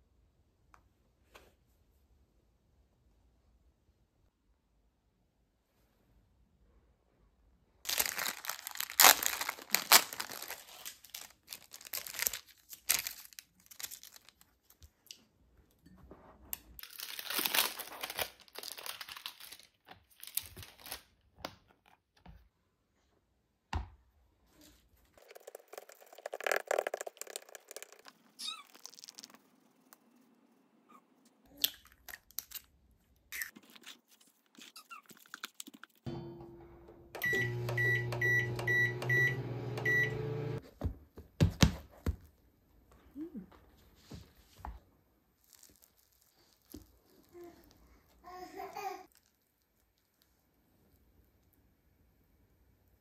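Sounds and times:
plastic packaging crinkling and tearing: 0:07.9 - 0:15.0, 0:16.8 - 0:21.2, 0:25.2 - 0:29.5, 0:45.4 - 0:47.7
microwave oven humming: 0:36.1 - 0:40.6.

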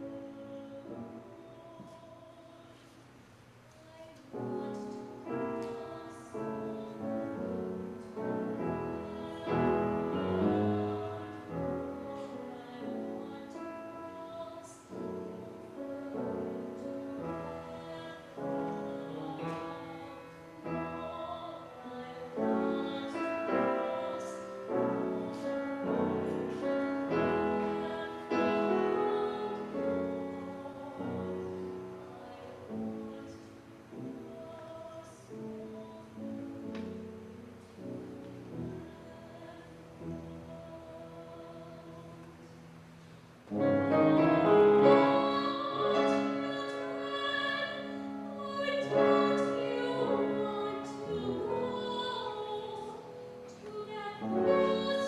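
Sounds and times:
piano accompaniment: 0:00.0 - 0:02.6, 0:04.2 - 0:55.0
woman singing: 0:00.0 - 0:03.0, 0:03.7 - 0:37.4, 0:38.6 - 0:42.6, 0:43.5 - 0:55.0.

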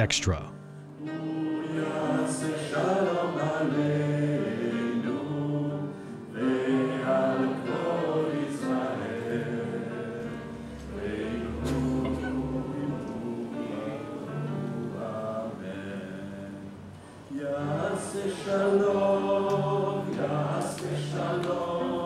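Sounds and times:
choir singing held chords: 0:00.0 - 0:22.0.

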